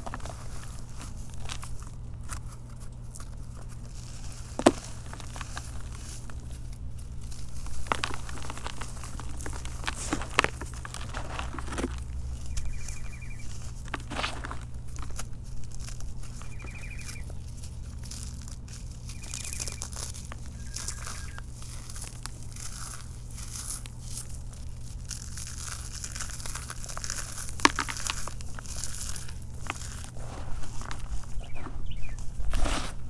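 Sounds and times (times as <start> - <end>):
hands crumbling chalk: 0.0 - 33.0
chalk lump snapping: 13.7 - 31.1.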